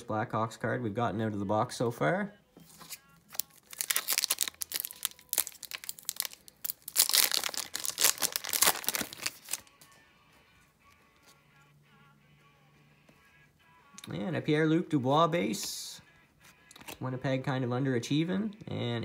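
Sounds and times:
foil wrapper crinkling and tearing: 0:02.8 - 0:09.8.

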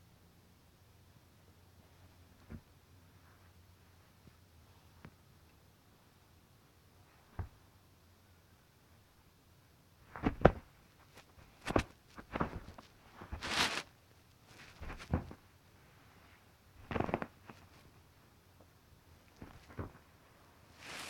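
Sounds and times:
rustling burst: 0:13.3 - 0:13.8, 0:20.8 - 0:21.0
soft knocks and scuffs: 0:14.5 - 0:15.4.

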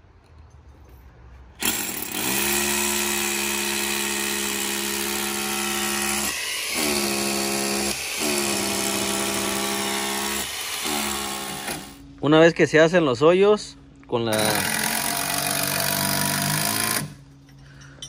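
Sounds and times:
hammer drill whining: 0:01.6 - 0:12.0.

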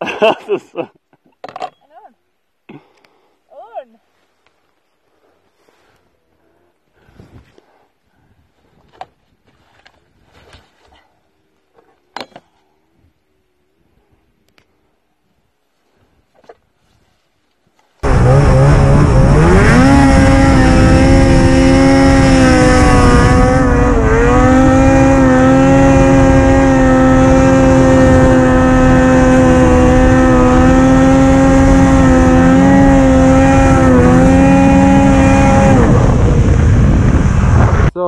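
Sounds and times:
snowmobile engine revving: 0:18.0 - 0:37.9.

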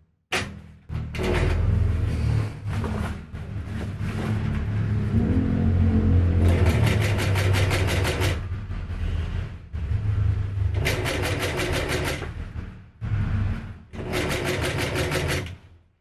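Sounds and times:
sewing machine humming: 0:06.4 - 0:08.5, 0:10.8 - 0:12.3, 0:14.0 - 0:15.5.

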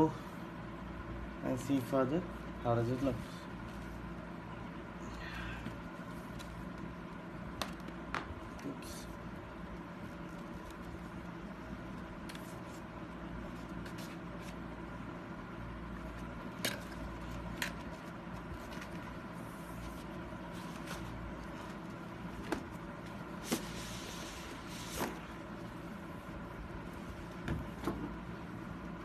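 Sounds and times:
steady hum: 0:00.0 - 0:29.0.

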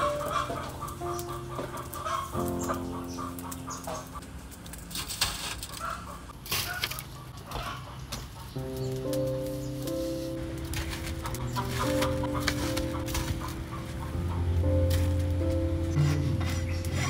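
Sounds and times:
chickens clucking: 0:00.0 - 0:04.2, 0:05.7 - 0:09.2, 0:10.8 - 0:15.3
soft background music: 0:00.0 - 0:04.9, 0:07.6 - 0:17.0.

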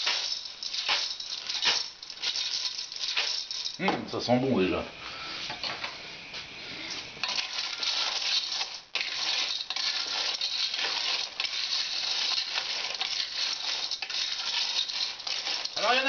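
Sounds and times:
shells clattering in a metal pot: 0:00.0 - 0:04.0, 0:07.2 - 0:16.0.

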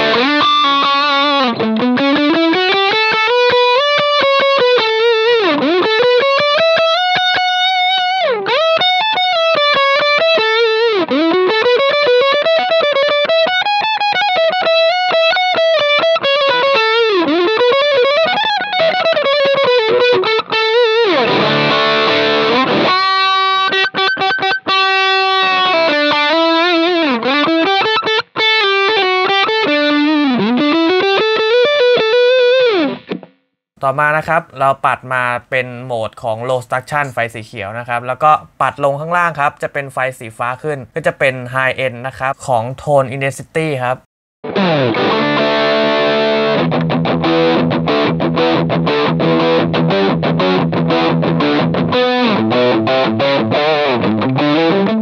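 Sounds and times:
electric guitar chord ringing: 0:00.0 - 0:33.2, 0:44.4 - 0:55.0
distorted electric guitar lead: 0:00.0 - 0:34.4, 0:44.4 - 0:55.0.

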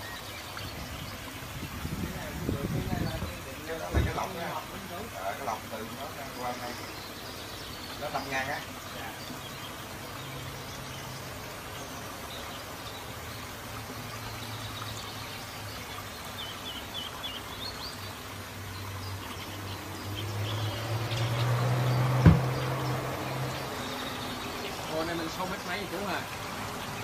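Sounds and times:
bird chirping: 0:00.0 - 0:27.0
water noise: 0:00.0 - 0:27.0
brief thump: 0:22.2 - 0:22.6.

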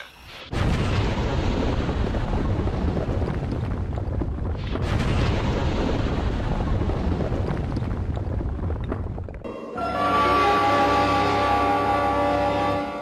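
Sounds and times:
explosion rumble with crackling: 0:00.5 - 0:09.5.

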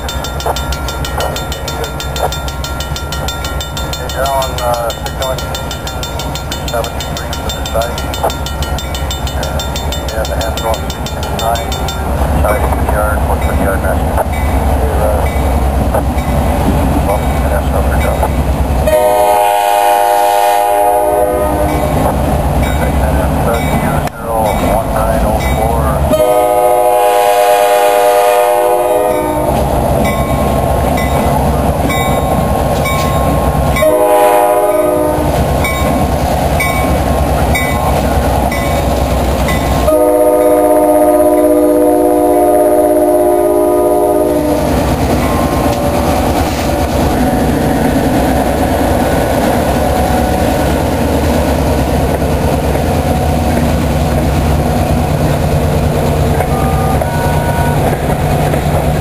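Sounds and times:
wheels clicking over rail joints: 0:00.0 - 0:14.6, 0:44.6 - 0:57.1
locomotive air horn blasts: 0:18.9 - 0:21.8, 0:26.1 - 0:29.5, 0:33.8 - 0:35.3, 0:39.8 - 0:44.8.

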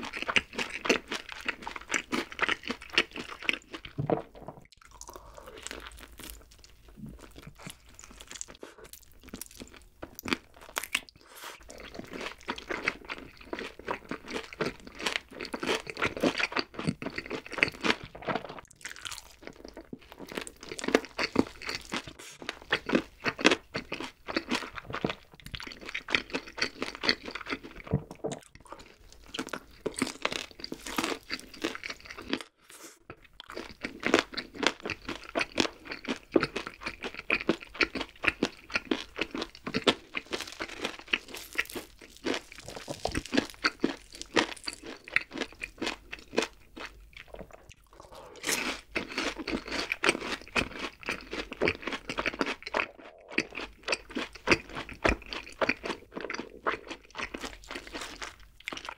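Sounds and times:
crunching fried chicken: 0:00.0 - 0:32.6, 0:33.3 - 0:58.9.

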